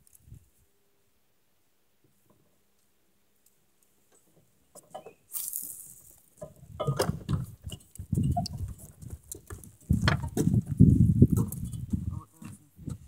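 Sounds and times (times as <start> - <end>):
rustling and scraping: 4.1 - 13.0.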